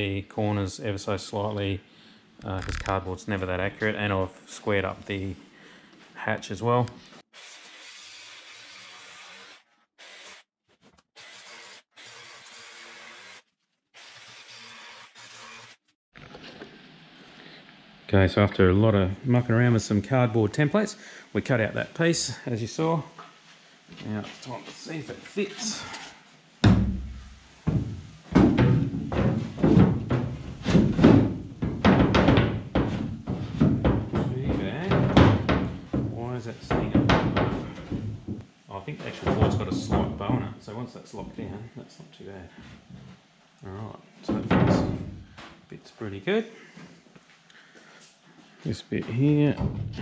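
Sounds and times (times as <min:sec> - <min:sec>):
wooden panel knocking on metal: 0:26.6 - 0:38.4.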